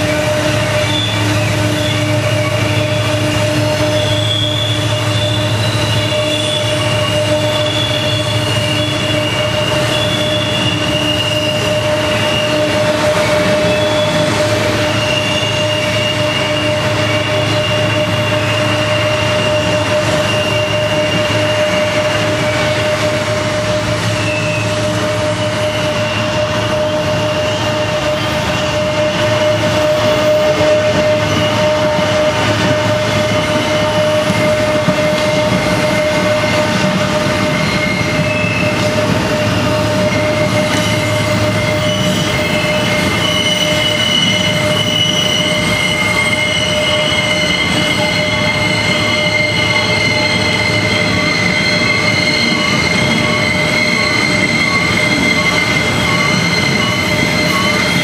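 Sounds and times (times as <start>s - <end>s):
freight train cars rolling: 0.0s - 58.0s
wheel flanges squealing: 0.0s - 58.0s.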